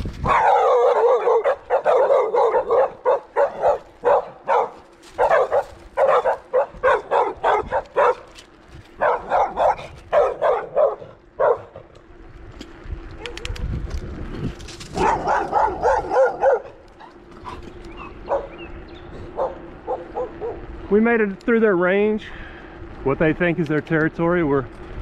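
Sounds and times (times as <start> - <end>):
dogs barking: 0.2 - 12.0, 14.9 - 20.8.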